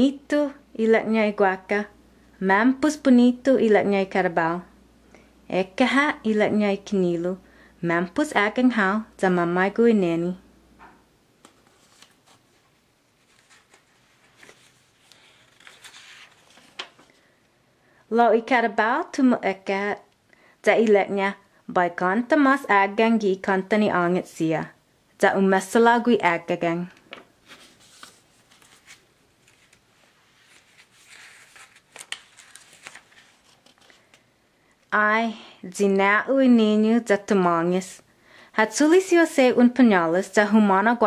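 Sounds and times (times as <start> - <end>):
booklet pages rustling: 11.4 - 17.2, 27.4 - 34.3.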